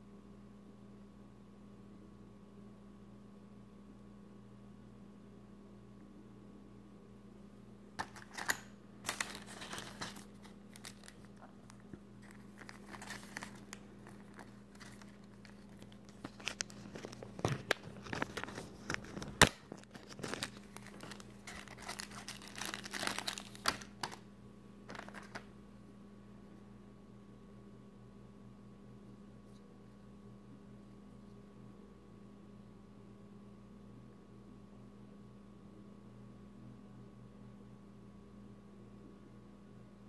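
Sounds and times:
plastic and paper crinkling: 8.0 - 24.2, 24.9 - 25.5.

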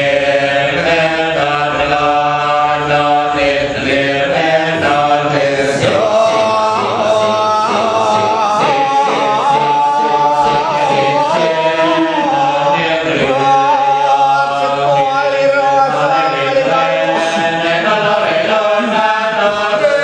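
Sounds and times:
men chanting in chorus: 0.0 - 20.0.

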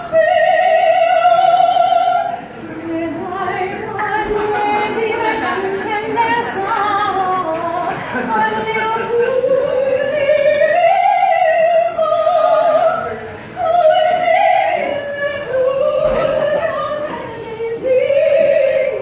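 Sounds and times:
high voice singing opera: 0.0 - 19.0.

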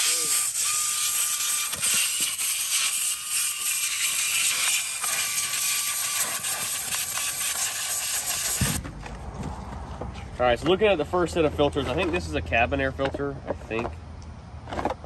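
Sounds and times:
compressed air hissing: 3.9 - 8.8.

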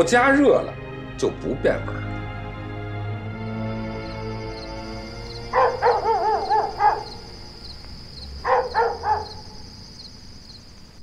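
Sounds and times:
insects chirping: 0.0 - 11.0
dog barking: 5.4 - 7.3, 8.4 - 9.6.

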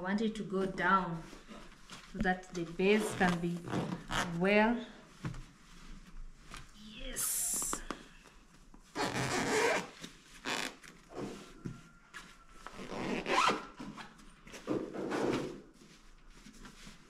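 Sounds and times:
zipper on fabric bag: 9.0 - 10.7, 12.8 - 13.7.

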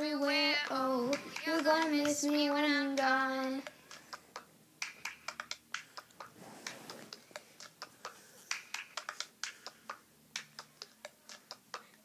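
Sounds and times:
hand claps: 3.9 - 6.3, 7.6 - 11.9.

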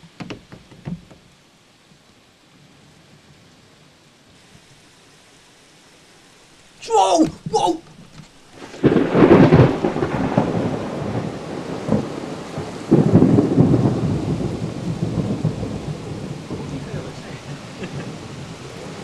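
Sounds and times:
thunder clap rumbling: 8.5 - 19.0.

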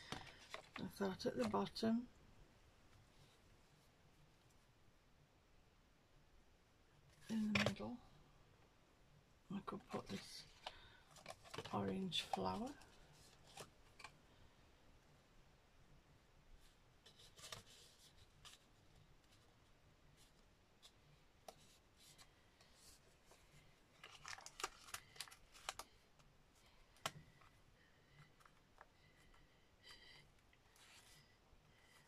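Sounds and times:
card stock rustling: 0.0 - 1.6, 9.8 - 14.2, 21.6 - 26.0.

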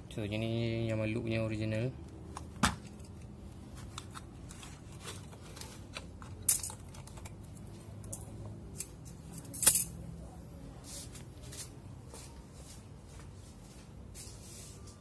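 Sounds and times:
scissors cutting foil seal: 8.7 - 10.0.

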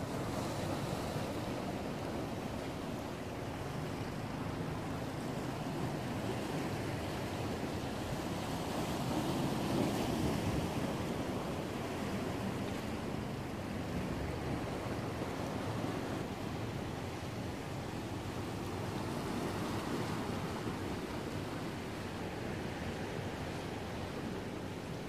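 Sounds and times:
waves washing against breakwater: 0.0 - 25.0.

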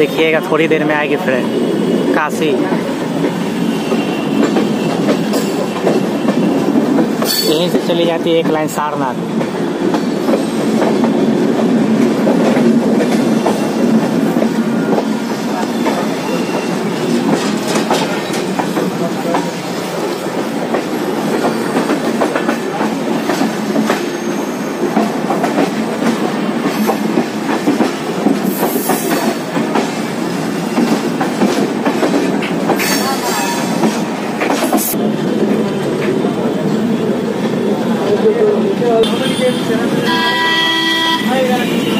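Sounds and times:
train rumbling on track: 0.0 - 41.9
high wheel squeals: 16.0 - 17.2, 24.1 - 24.8.

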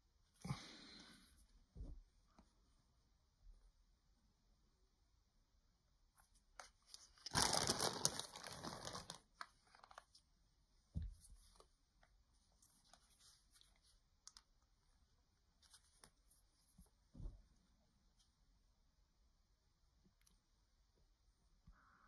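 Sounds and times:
plastic packaging crinkling: 6.8 - 10.2.

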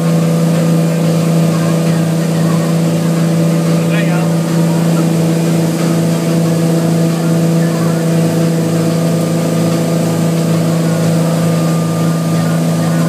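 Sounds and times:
boat engine running: 0.0 - 13.0
churning wake rushing: 0.0 - 13.0.

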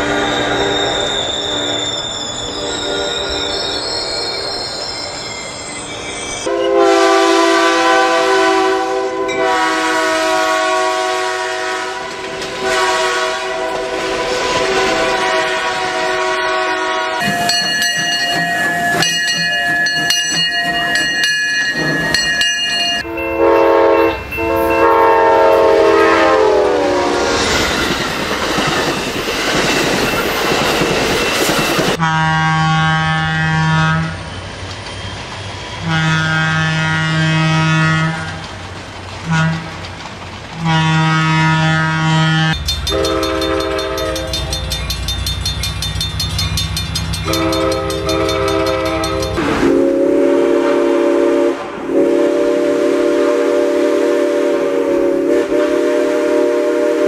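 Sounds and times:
high ringing tones: 0.0 - 6.5, 17.2 - 25.1, 42.6 - 49.4
rush of passing train: 0.0 - 57.0
multi-note train horn: 6.5 - 17.8, 23.0 - 27.4, 32.0 - 34.2, 35.8 - 38.4, 39.3 - 39.7, 40.6 - 44.6, 47.2 - 57.0
train whistle sagging in pitch: 6.5 - 19.2, 23.0 - 27.4, 40.7 - 44.6, 47.2 - 57.0.

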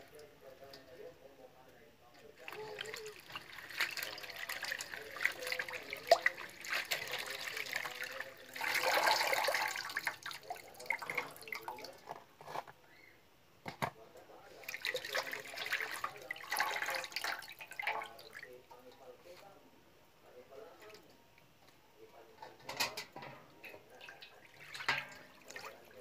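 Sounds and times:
water sloshing in a basin: 2.2 - 12.2, 14.4 - 19.1, 22.5 - 26.0.

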